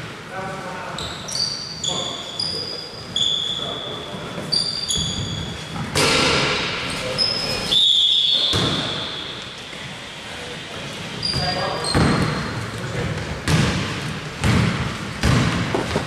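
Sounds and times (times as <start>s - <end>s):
sneakers squeaking on floor: 0.9s - 6.0s, 7.0s - 10.0s, 11.1s - 13.7s
basketball bouncing: 11.4s - 12.4s, 13.1s - 16.0s.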